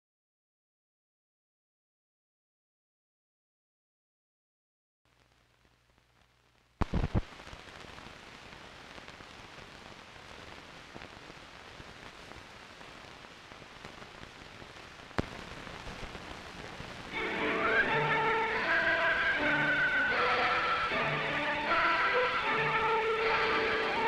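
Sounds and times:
film soundtrack hiss and crackle: 5.1 - 24.0
loud pops: 6.8 - 17.2.

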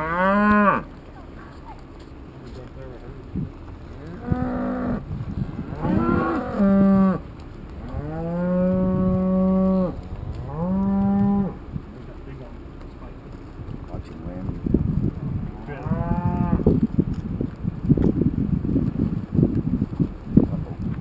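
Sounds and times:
cattle mooing: 0.0 - 0.9, 4.0 - 7.2, 7.8 - 11.6, 15.6 - 16.7.

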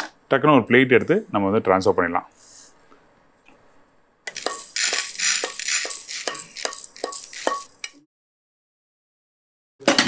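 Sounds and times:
dry lentils rattling on plate: 4.3 - 7.9
spoon scraping pan: 4.3 - 7.9.

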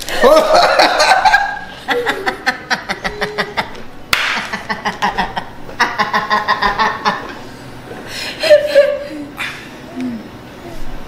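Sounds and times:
man laughing: 0.1 - 3.8, 4.4 - 7.3
woman laughing: 0.1 - 3.8, 4.4 - 7.3, 8.3 - 9.6.

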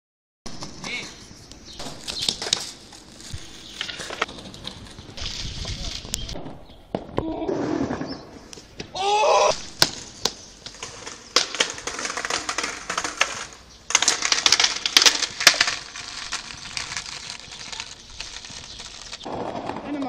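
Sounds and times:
skateboard clattering on tiles: 1.8 - 3.0, 9.8 - 20.0
person shouting: 9.0 - 9.5.

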